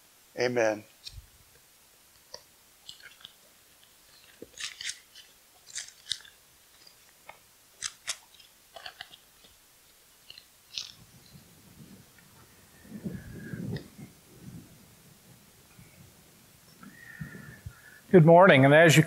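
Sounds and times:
papers rustling: 2.2s - 9.6s.

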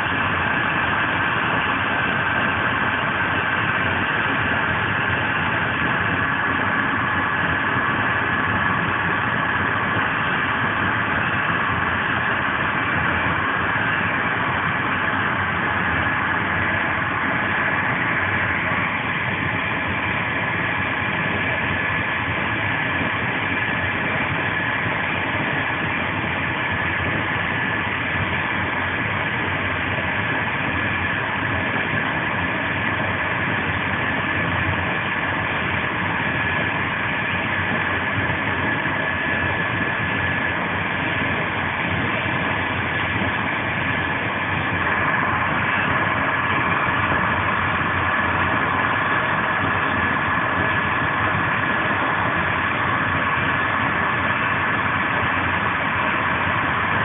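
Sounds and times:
faint steady whine: 0.0s - 57.0s
train rolling at high speed: 0.0s - 57.0s.

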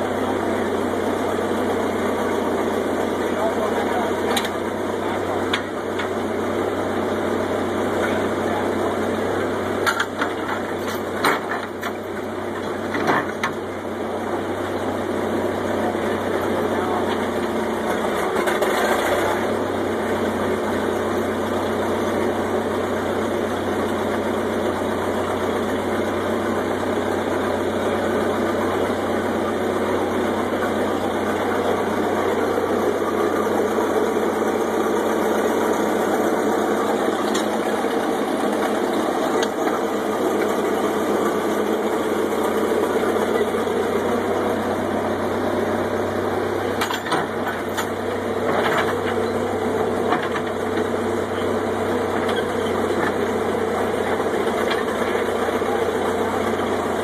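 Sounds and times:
engine running under load: 0.0s - 57.0s.

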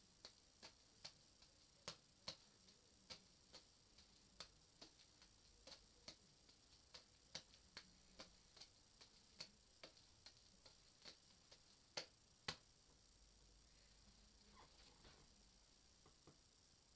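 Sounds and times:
juggling balls smacking into hands: 0.2s - 12.7s.

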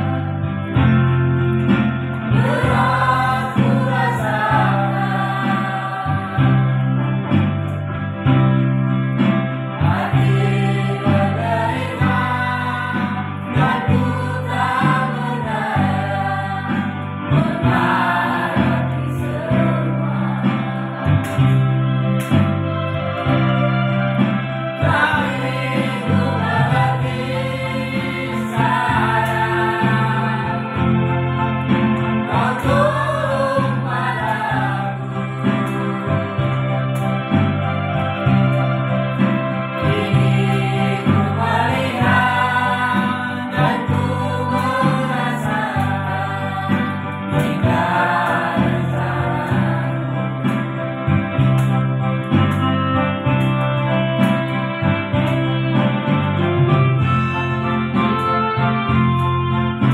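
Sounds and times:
group singing in harmony: 0.0s - 7.5s, 9.8s - 22.4s, 24.2s - 51.6s
instrumental accompaniment chords: 0.0s - 59.9s.

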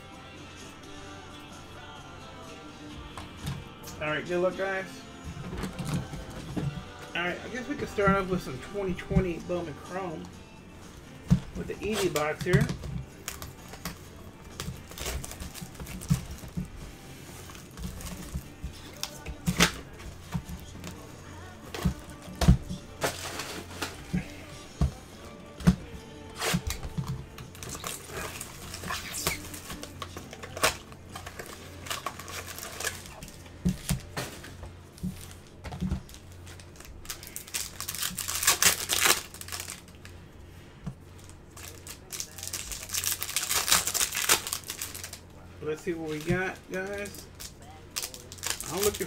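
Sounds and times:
foil packs crinkling: 11.2s - 24.6s, 25.2s - 40.1s, 41.2s - 49.0s.

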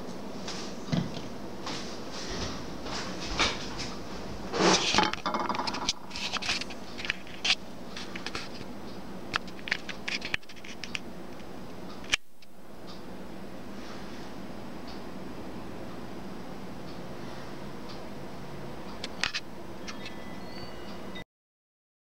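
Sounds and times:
camera handling rubbing and scraping: 6.0s - 8.7s, 9.7s - 10.9s.

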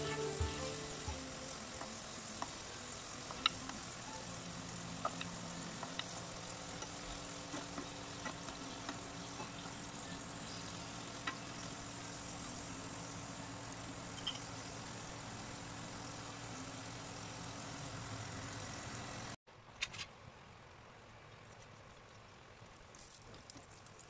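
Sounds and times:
shrimp sizzling in oil: 0.0s - 19.4s
oil popping in pan: 1.5s - 17.8s, 21.7s - 24.0s.

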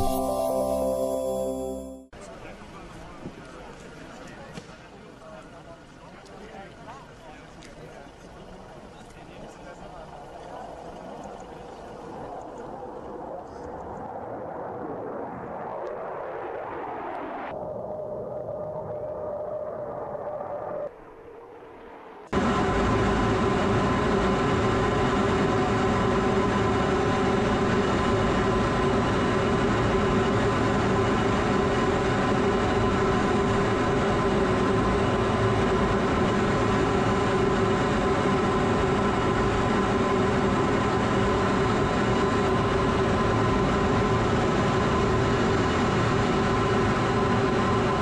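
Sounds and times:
jet cockpit engine drone: 10.5s - 48.0s.

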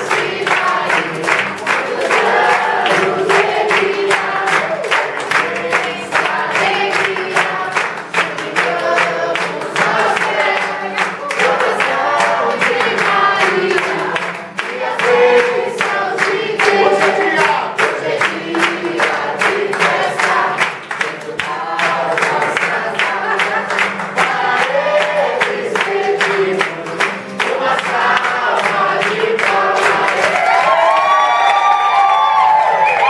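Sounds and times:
group of people singing: 0.0s - 30.4s
people clapping in rhythm: 0.0s - 33.0s.

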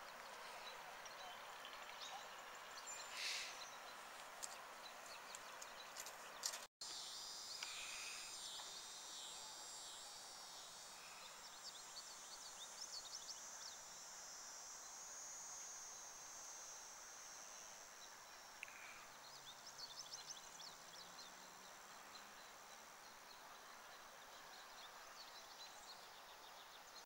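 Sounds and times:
birds chirping: 0.0s - 6.7s
faint steady high hiss: 0.0s - 27.0s.

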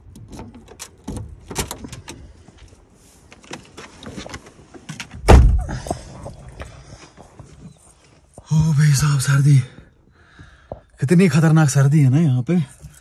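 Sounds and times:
car door knocks: 5.2s - 5.8s
car door thump shut: 5.2s - 5.9s
key rattling in door lock: 12.7s - 13.0s.

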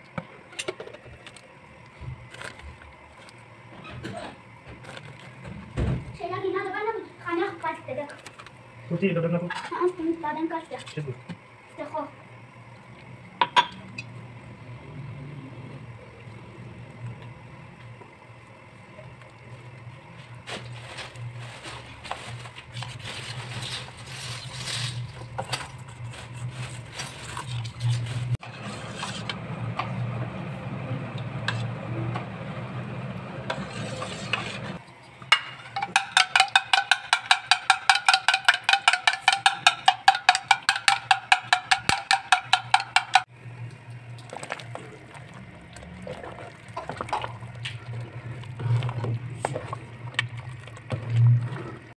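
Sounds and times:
steady low hum: 0.0s - 36.2s
spoon scraping batter in steel bowl: 33.5s - 34.8s.

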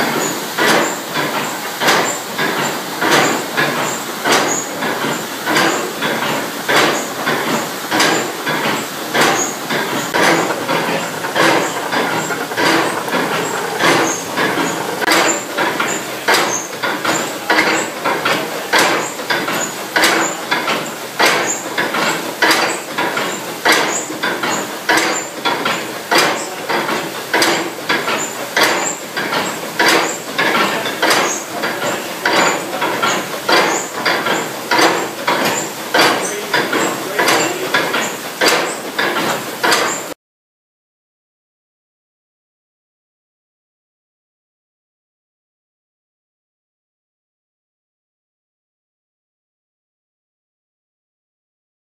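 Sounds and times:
heavy iron stamps pounding: 0.0s - 40.2s
water washing: 0.0s - 40.2s.

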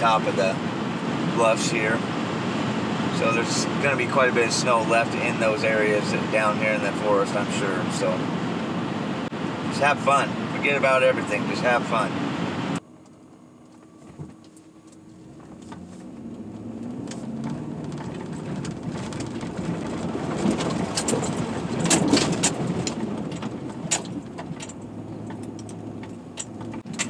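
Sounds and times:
vehicle engine running: 0.0s - 27.0s
knocks and rattles: 17.0s - 27.0s.

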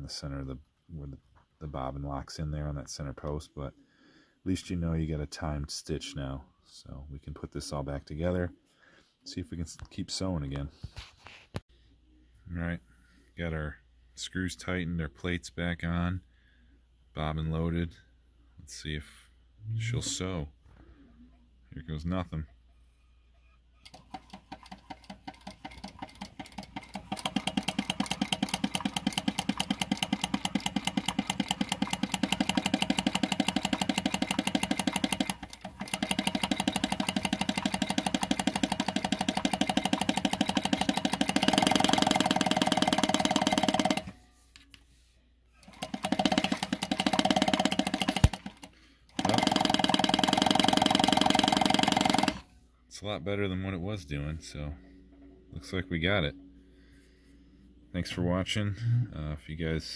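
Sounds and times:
sewing machine stitching: 23.9s - 44.2s, 45.6s - 52.4s.

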